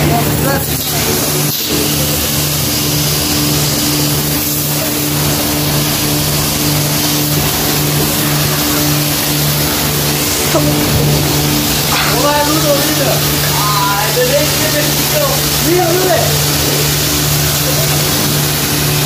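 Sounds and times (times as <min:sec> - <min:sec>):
pressure washer pump hum: 0:00.0 - 0:19.0
water jet hissing: 0:00.0 - 0:19.0.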